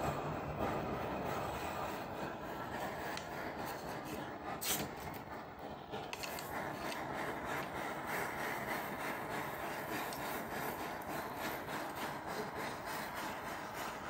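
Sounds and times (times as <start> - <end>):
gas torch hissing: 0.0 - 14.0.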